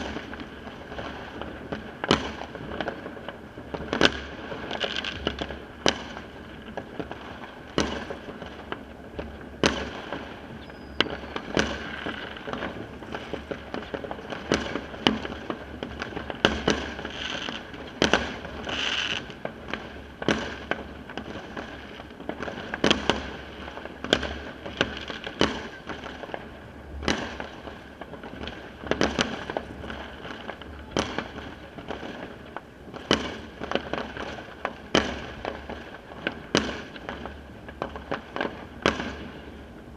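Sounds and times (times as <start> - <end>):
distant firework crackle: 0.0 - 39.9
firework bangs: 0.0 - 39.9
firework hissing burst: 18.2 - 19.3.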